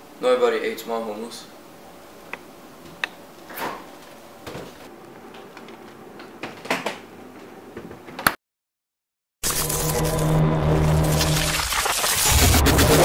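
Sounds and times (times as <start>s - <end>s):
low room hiss: 0.0s - 4.5s.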